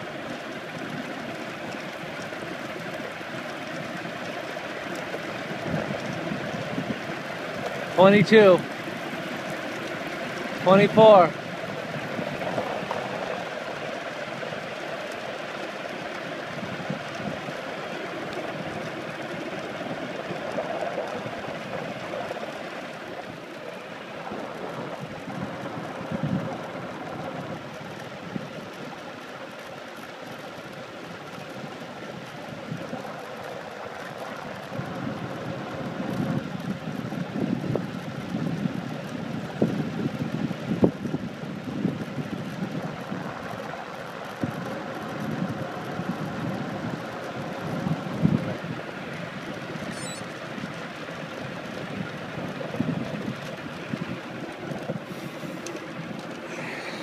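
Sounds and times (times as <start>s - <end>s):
wind on microphone: 0.0s - 57.0s
tyre hiss on wet road: 55.0s - 57.0s.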